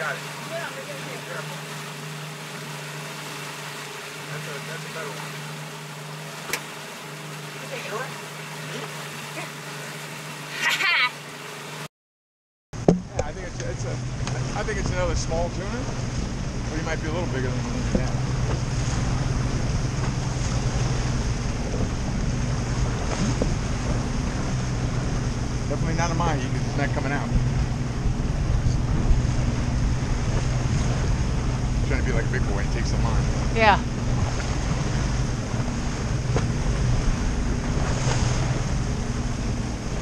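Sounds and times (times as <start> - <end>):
outboard motor running: 0.0 - 11.9, 12.8 - 40.0
rushing water: 0.0 - 11.9, 13.1 - 40.0
wind: 0.0 - 11.9, 12.8 - 40.0.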